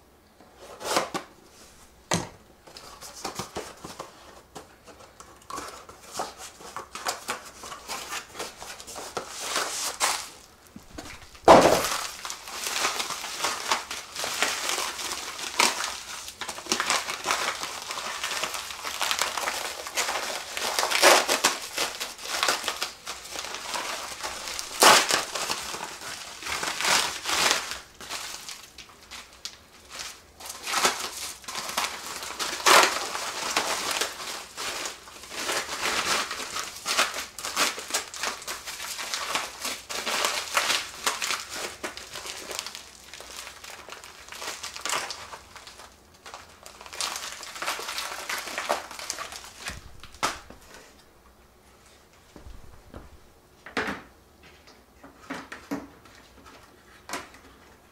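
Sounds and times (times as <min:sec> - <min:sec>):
bubble wrap crinkling: 0:00.6 - 0:51.1.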